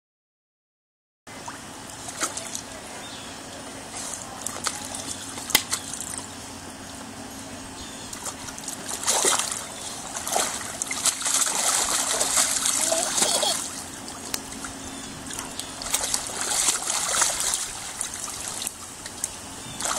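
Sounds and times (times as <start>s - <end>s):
dog splashing in water: 8.1s - 19.9s
water trickling: 8.1s - 19.9s.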